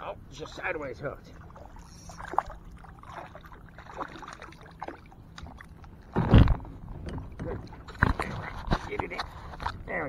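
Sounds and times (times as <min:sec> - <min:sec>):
water splashing: 0:00.4 - 0:06.5.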